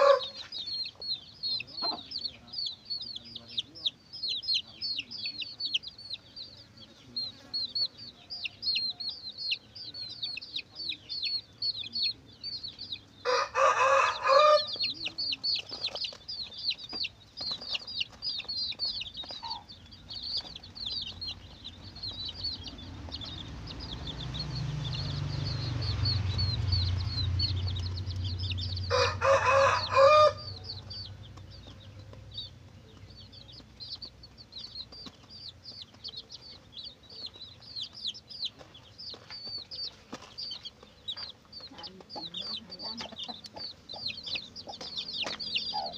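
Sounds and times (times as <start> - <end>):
chicken calling loudly: 0.0 - 0.5, 28.9 - 30.6
chicks peeping: 0.0 - 45.9
low rumble: 19.8 - 29.0.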